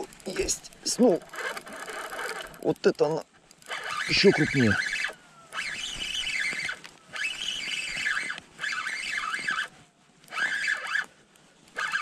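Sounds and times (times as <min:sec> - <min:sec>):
spinning reel whirring: 0:00.0 - 0:11.1, 0:11.7 - 0:12.0.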